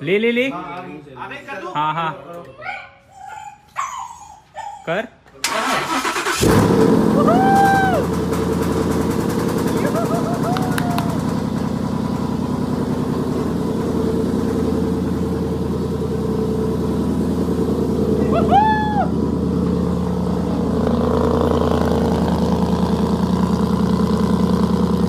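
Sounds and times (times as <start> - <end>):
car engine idling: 5.6 - 25.0.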